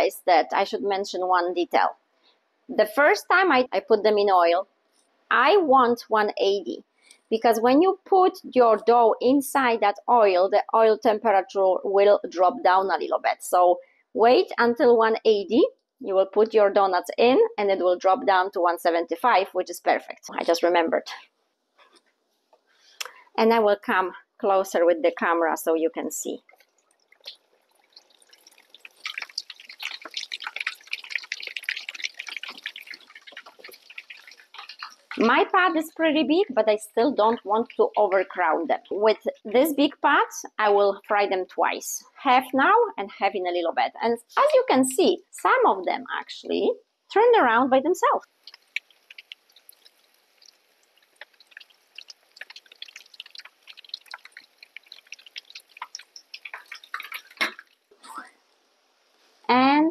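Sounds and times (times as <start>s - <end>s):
dough dropping into oil: 26.4s - 35.3s, 48.3s - 57.9s
oil sizzling and crackling: 26.4s - 39.0s, 48.2s - 59.5s.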